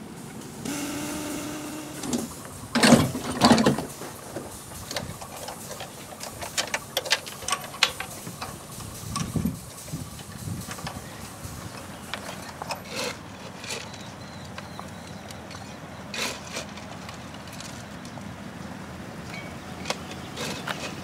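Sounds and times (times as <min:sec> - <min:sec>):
loud noisy bursts: 0:00.6 - 0:04.0.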